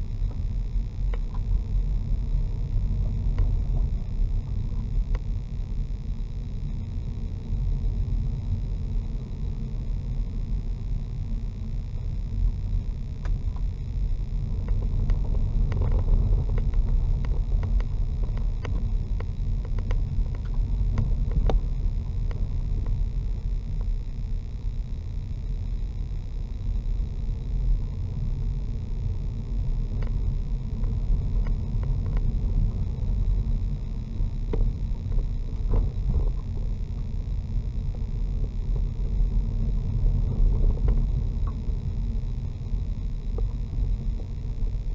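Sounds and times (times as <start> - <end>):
car engine and tyres rumbling: 13.2 - 24.0.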